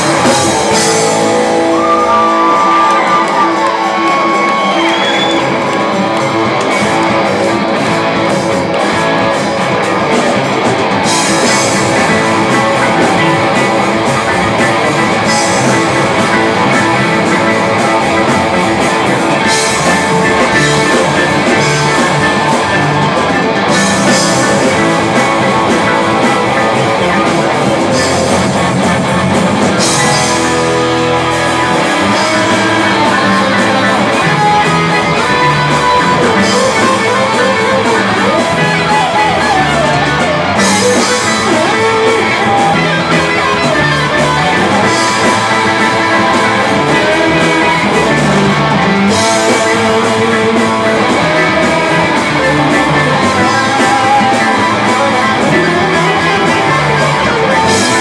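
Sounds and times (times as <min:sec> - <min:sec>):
rock band playing live: 0:00.0 - 0:58.0.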